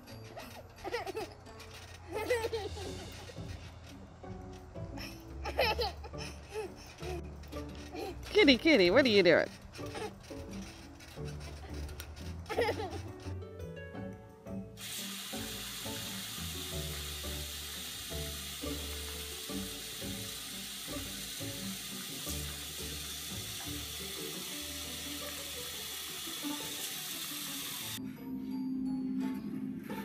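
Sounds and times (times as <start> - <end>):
background music: 0.0 - 30.0
faucet running into a sink: 14.8 - 28.0.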